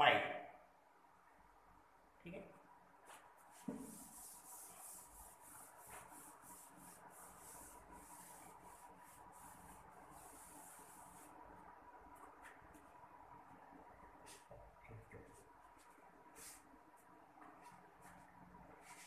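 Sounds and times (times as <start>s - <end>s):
duster rubbing on chalkboard: 3.4s - 11.4s.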